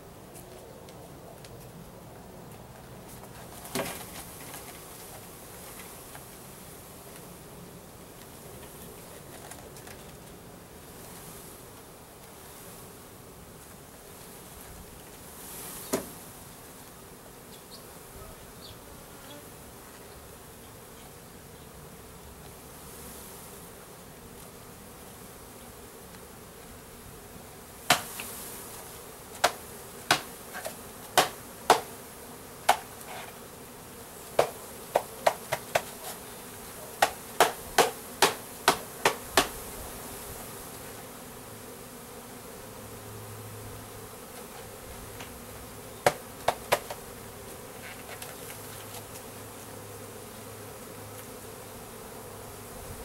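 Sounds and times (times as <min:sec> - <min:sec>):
honey bees buzzing: 0:00.0 - 0:53.0
sharp knocks on wooden box: 0:27.9 - 0:28.3, 0:29.4 - 0:31.9, 0:34.4 - 0:36.0, 0:37.0 - 0:39.6, 0:46.0 - 0:47.0.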